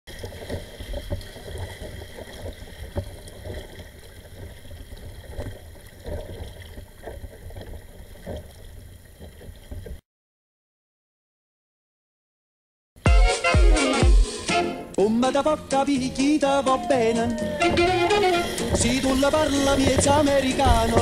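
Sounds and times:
paddle strokes splashing: 0:00.1 - 0:10.0, 0:15.7 - 0:21.0
wind on microphone: 0:16.9 - 0:21.0.

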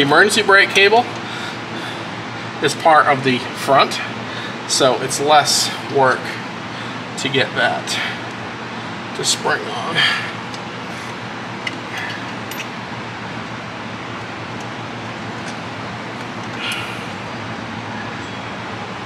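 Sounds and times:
garage background hiss: 0:00.0 - 0:19.0
faint metal hardware clicks: 0:11.6 - 0:12.8.

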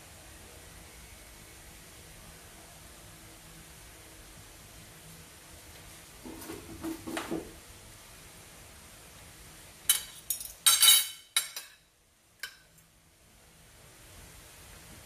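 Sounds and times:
utensils clattering against dishes: 0:09.9 - 0:11.8.

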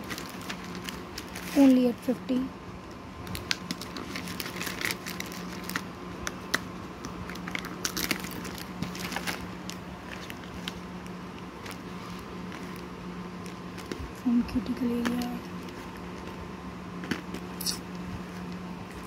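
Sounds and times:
plastic packaging crinkling: 0:00.0 - 0:02.0, 0:03.2 - 0:16.4.

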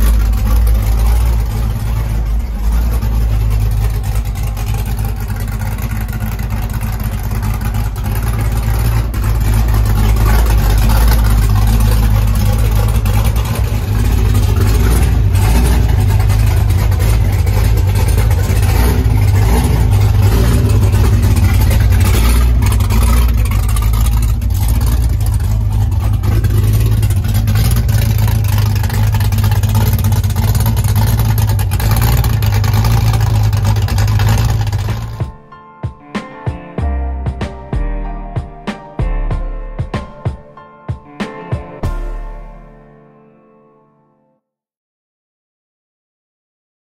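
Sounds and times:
car engine idling: 0:00.0 - 0:35.5.

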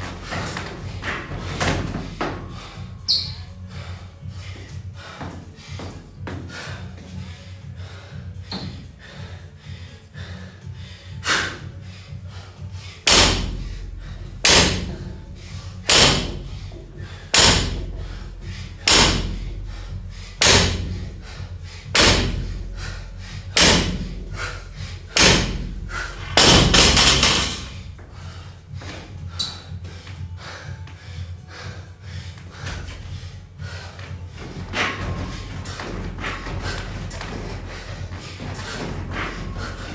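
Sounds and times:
barbell thudding on wooden platform: 0:14.4 - 0:15.0.

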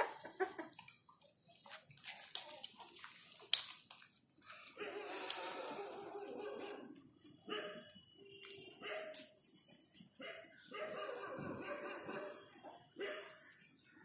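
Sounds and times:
puppies whining and yipping: 0:00.0 - 0:01.3.

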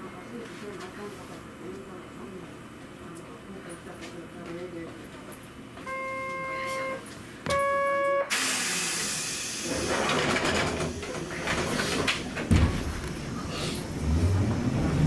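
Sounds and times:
compressed air hiss: 0:08.3 - 0:09.7
tram rumbling and clattering: 0:09.5 - 0:15.0.

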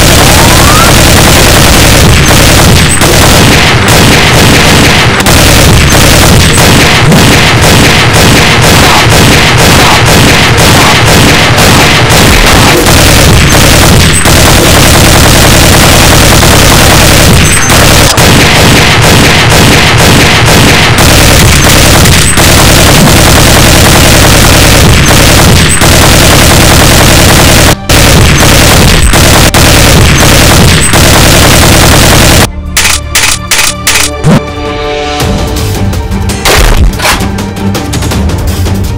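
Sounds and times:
automatic gunfire: 0:00.0 - 0:34.1.

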